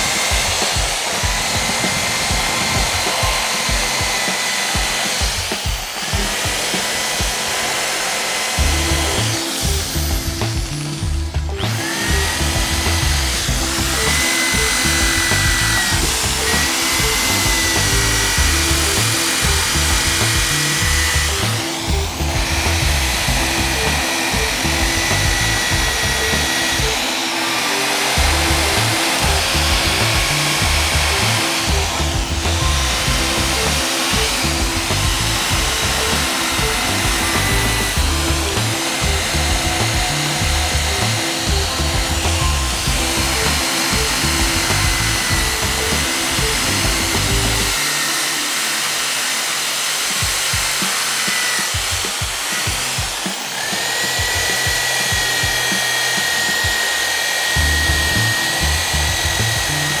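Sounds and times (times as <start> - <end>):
drill motor whine: 0.0 - 60.0.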